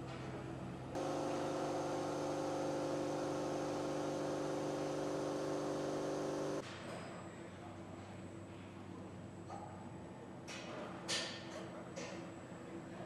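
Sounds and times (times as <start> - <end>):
engine test stand humming: 1.0 - 6.6.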